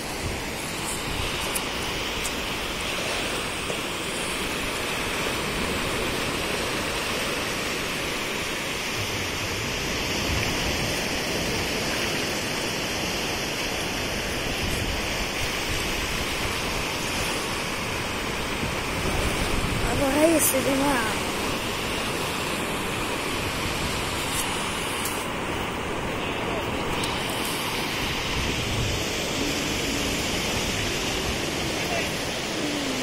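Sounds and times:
waves breaking on beach: 0.0s - 33.0s.

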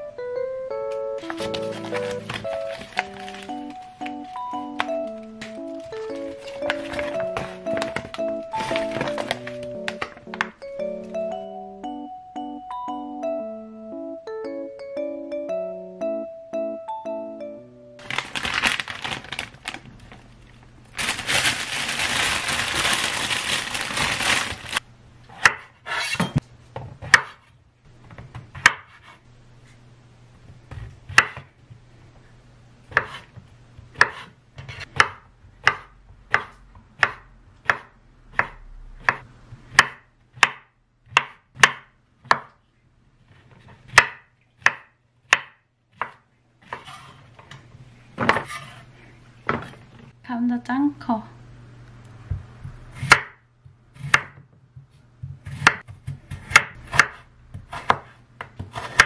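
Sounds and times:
plastic packaging crinkling: 1.2s - 10.6s, 18.0s - 24.8s
knife chopping on wooden board: 25.4s - 26.4s, 27.0s - 27.5s, 28.5s - 29.2s, 31.1s - 31.5s, 32.9s - 33.3s, 33.9s - 42.6s, 43.9s - 47.1s, 53.0s - 53.4s, 54.0s - 59.0s.

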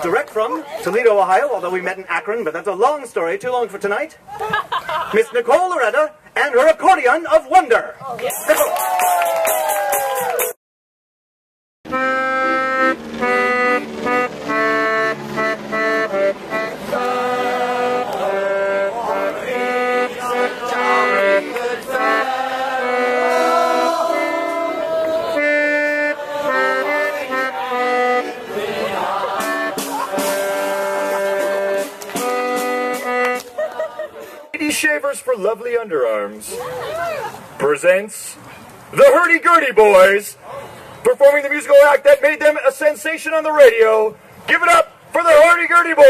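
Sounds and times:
piano accordion playing: 11.9s - 34.6s.

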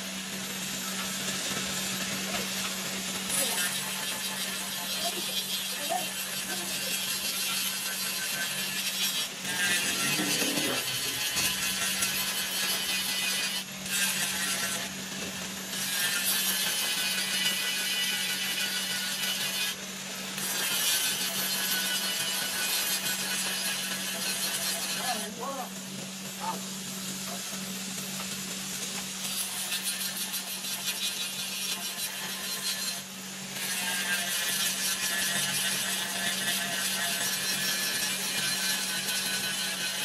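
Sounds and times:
electric motor hum: 0.0s - 15.8s
angle grinder grinding metal: 0.0s - 40.0s.

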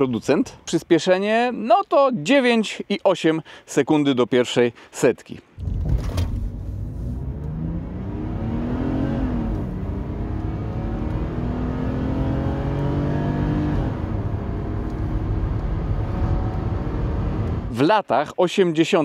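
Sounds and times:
car engine accelerating hard: 5.9s - 17.7s.

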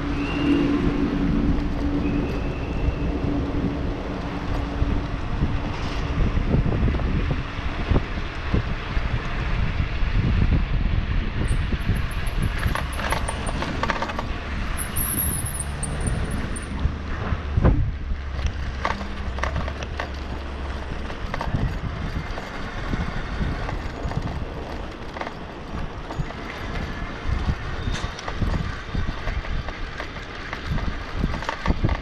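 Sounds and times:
wind and tyres on road: 0.0s - 32.0s
bike rattles: 11.4s - 32.0s.

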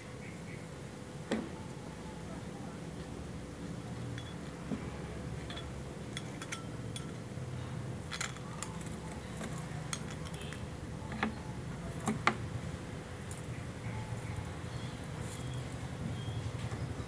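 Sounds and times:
metallic clicks and clinks: 5.4s - 7.2s, 8.1s - 11.3s.

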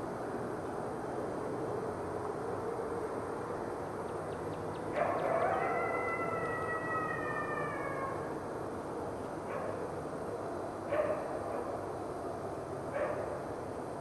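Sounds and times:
wolf howling: 5.0s - 8.3s.

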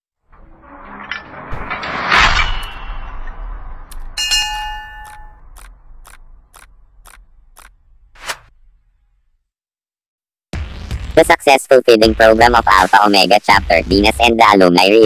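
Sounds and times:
impact hit: 1.0s - 9.0s
bright bell-like ding: 4.2s - 5.4s.

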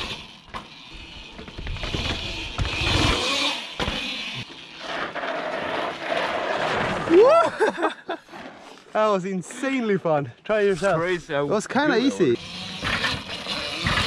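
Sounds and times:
electric motor whine: 0.0s - 6.1s, 12.2s - 14.0s.

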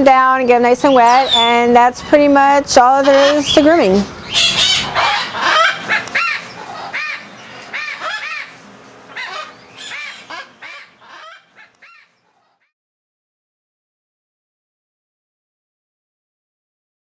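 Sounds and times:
parrots squawking: 0.9s - 1.5s, 2.8s - 12.7s.

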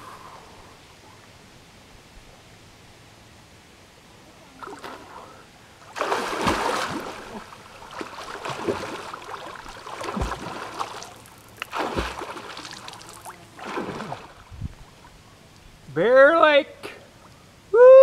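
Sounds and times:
swimmer splashing in water: 5.9s - 14.4s.

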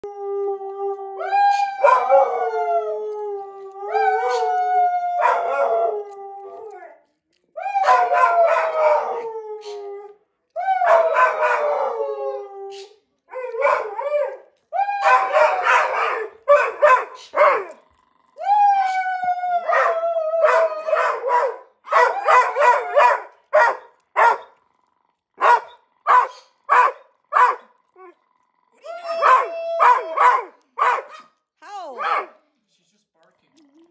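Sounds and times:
dog howling: 0.0s - 7.0s, 7.6s - 24.5s, 28.8s - 31.2s
dog yipping: 20.5s - 24.5s, 25.4s - 27.6s, 29.2s - 31.3s.

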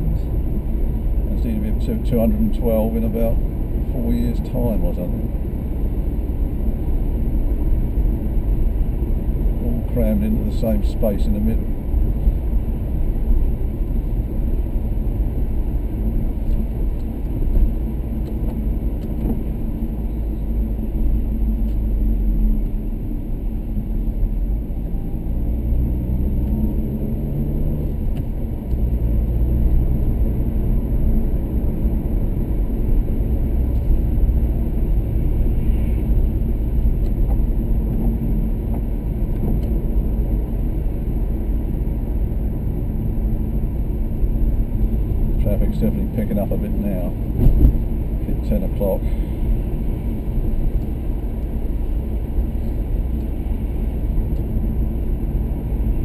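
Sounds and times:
car engine and road noise: 0.0s - 56.0s.

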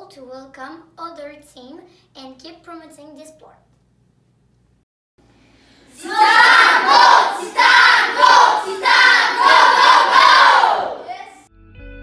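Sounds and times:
group shouting a cheer: 5.9s - 11.5s.

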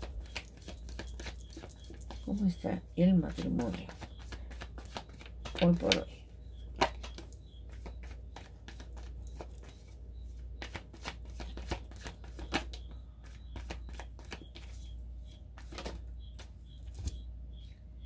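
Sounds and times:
cards being shuffled: 0.0s - 2.3s, 3.3s - 6.1s, 6.8s - 10.0s, 10.6s - 14.9s, 15.6s - 17.2s
steady low hum: 0.0s - 18.0s.

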